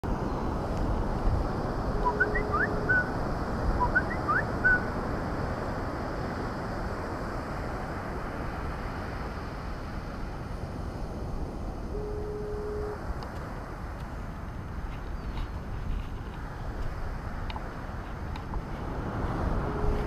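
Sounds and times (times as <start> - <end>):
bird chirps: 2.0 - 3.1, 3.8 - 4.9.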